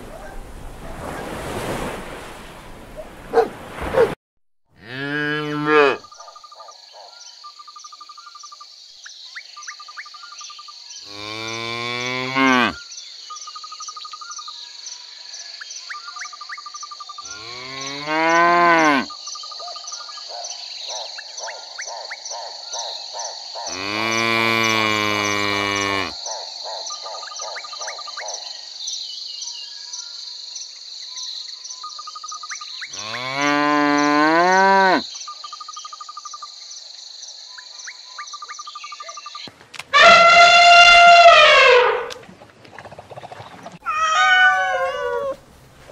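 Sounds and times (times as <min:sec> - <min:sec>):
cows mooing: 0:04.8 - 0:06.1, 0:11.1 - 0:12.8, 0:17.3 - 0:19.1, 0:23.7 - 0:26.2, 0:33.0 - 0:35.0
high insect chirping: 0:06.0 - 0:39.5.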